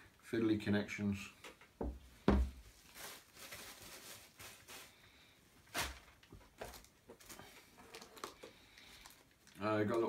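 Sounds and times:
plastic bag crinkling: 0:02.6 - 0:05.1, 0:05.7 - 0:10.0.

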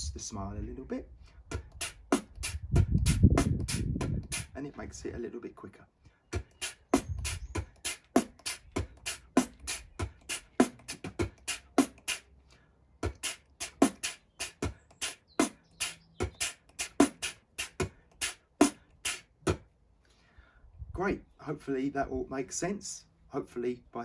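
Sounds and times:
beatboxed cymbal hits: 0:01.5 - 0:04.6, 0:06.4 - 0:12.3, 0:13.0 - 0:19.6
beatboxed kick drum thumps: 0:01.5 - 0:04.6, 0:06.3 - 0:12.3, 0:13.0 - 0:19.7.

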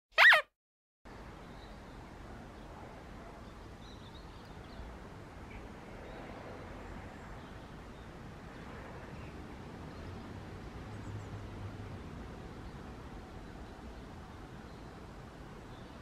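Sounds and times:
faint short bird calls: 0:00.2 - 0:00.5
outdoor background noise: 0:01.1 - 0:16.0.

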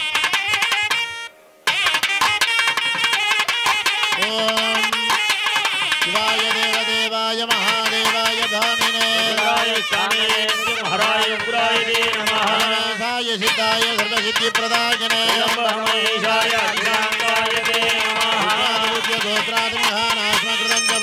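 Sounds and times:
wavering reed melody: 0:19.4 - 0:21.0.

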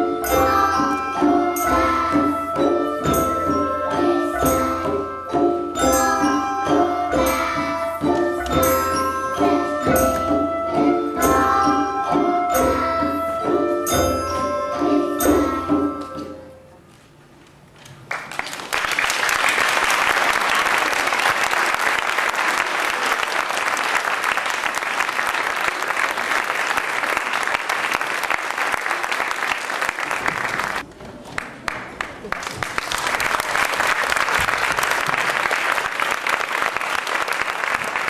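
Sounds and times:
xylophones and glockenspiels playing: 0:00.0 - 0:16.6
audience applauding: 0:18.0 - 0:38.0.

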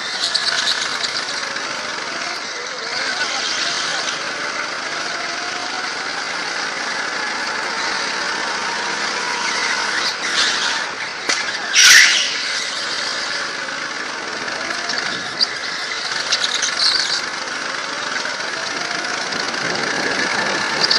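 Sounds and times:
tyre screeches: 0:00.0 - 0:04.2, 0:07.6 - 0:13.8, 0:14.4 - 0:18.3
go-kart engine running: 0:00.0 - 0:20.9.

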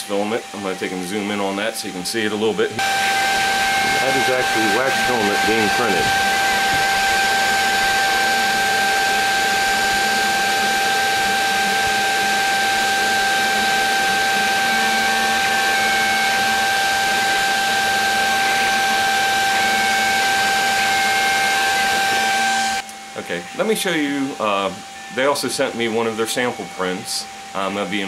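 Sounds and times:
constant high whine: 0:00.0 - 0:28.0
printer motor tones: 0:02.7 - 0:28.0
steady hiss: 0:22.8 - 0:28.0.

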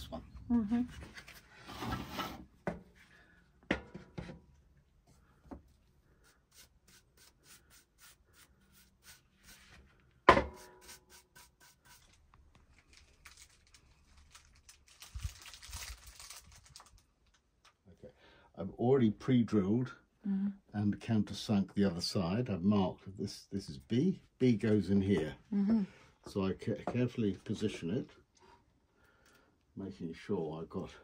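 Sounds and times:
paintbrush brushing on wood: 0:06.2 - 0:09.9, 0:10.6 - 0:12.1
knocks on wooden table: 0:10.3 - 0:10.6.

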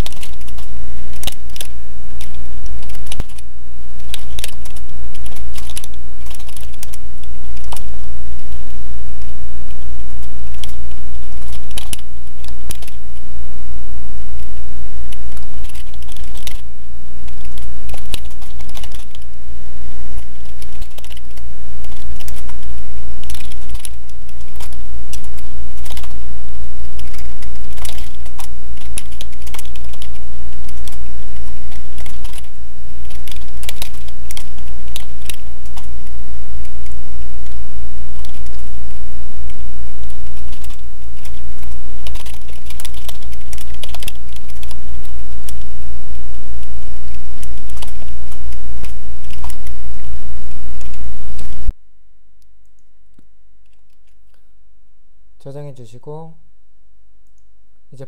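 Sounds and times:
keyboard typing clicks: 0:00.0 - 0:07.9, 0:09.7 - 0:13.0, 0:15.1 - 0:16.6, 0:17.3 - 0:19.3, 0:20.2 - 0:26.2, 0:27.0 - 0:35.9, 0:38.2 - 0:38.6, 0:40.0 - 0:45.6, 0:47.4 - 0:49.7
steady low hum: 0:00.0 - 0:58.0.

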